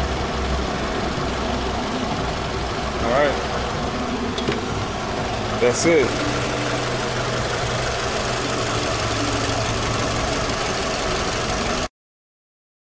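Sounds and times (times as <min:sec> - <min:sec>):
car engine idling: 0:00.0 - 0:11.9.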